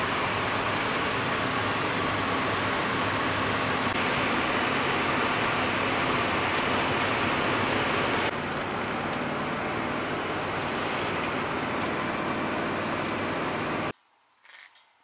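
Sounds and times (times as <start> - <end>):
car cabin road and wind noise: 0.0 - 13.9.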